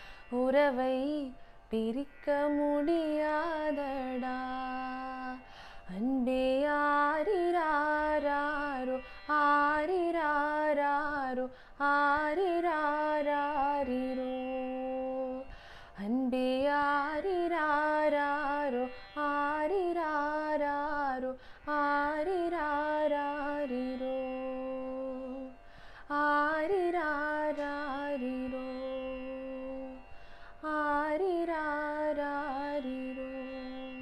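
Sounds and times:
singer breathing: 0:00.0 - 0:00.3, 0:05.5 - 0:05.9, 0:15.5 - 0:16.0, 0:25.6 - 0:26.1, 0:30.1 - 0:30.6.

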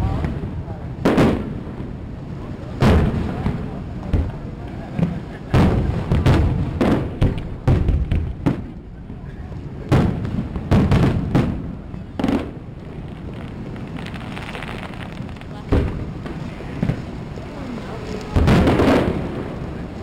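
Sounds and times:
firework shells bursting: 0:09.9 - 0:17.2.

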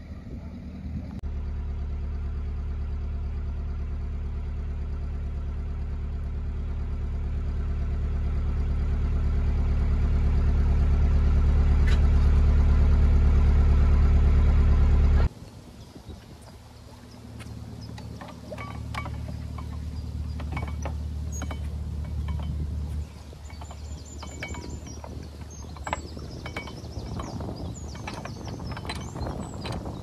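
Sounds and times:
boat engine idling: 0:00.0 - 0:30.0.

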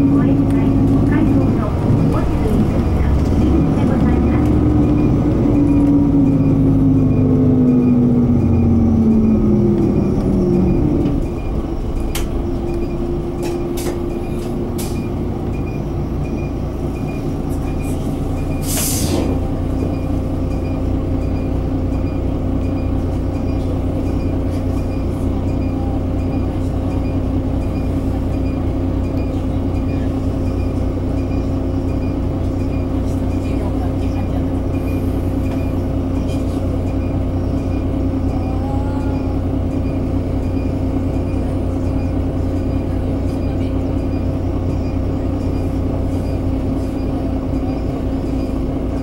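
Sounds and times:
diesel bus engine: 0:00.0 - 0:49.0
short hiss of air: 0:18.6 - 0:19.3.

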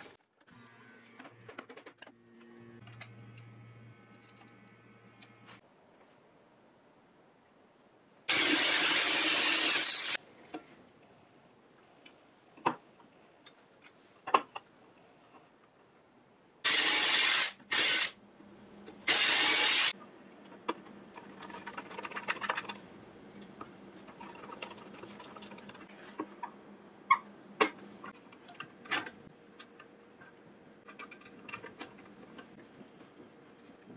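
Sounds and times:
power drill boring into wood: 0:08.3 - 0:10.2, 0:16.7 - 0:18.2, 0:19.1 - 0:19.9.

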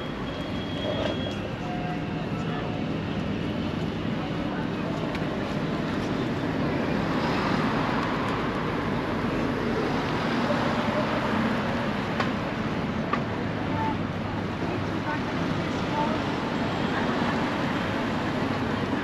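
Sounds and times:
road traffic hum: 0:00.0 - 0:19.0
cars passing close: 0:04.8 - 0:19.0.

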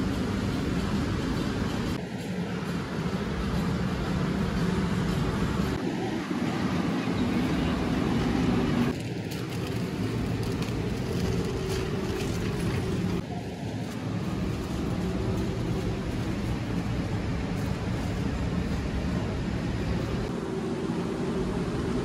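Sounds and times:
low warehouse rumble: 0:00.0 - 0:22.0.

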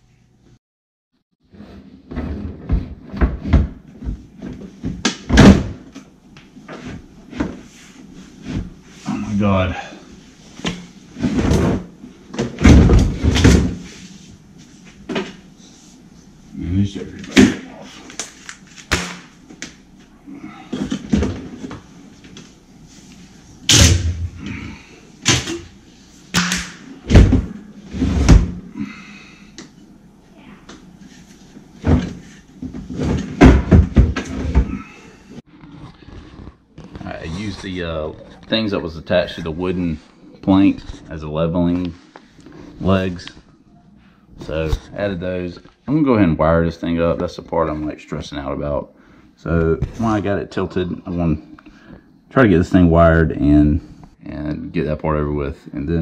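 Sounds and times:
dishwasher knocking and thumping: 0:02.1 - 0:04.2, 0:11.4 - 0:13.8, 0:31.8 - 0:34.8.

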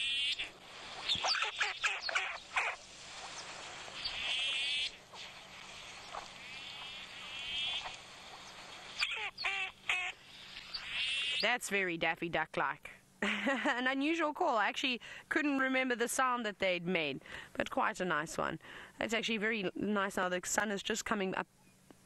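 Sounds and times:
duck raspy calls: 0:01.1 - 0:02.8, 0:09.0 - 0:10.2.

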